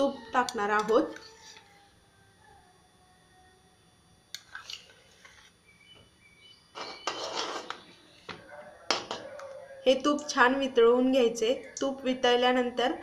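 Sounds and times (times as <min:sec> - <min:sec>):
spoon scraping metal pan: 0:06.8 - 0:07.8.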